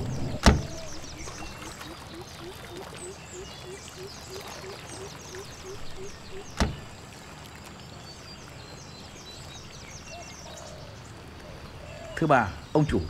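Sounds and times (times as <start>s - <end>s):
car door shutting: 0.1s - 0.9s, 6.4s - 6.9s.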